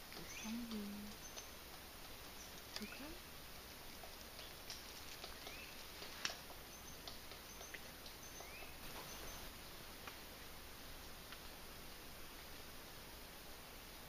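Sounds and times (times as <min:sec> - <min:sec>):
forest birds calling: 0:00.0 - 0:09.8
background hiss: 0:00.0 - 0:14.0
sharp ticks: 0:00.1 - 0:09.0
rising bird chirp: 0:00.2 - 0:01.6, 0:06.6 - 0:09.5.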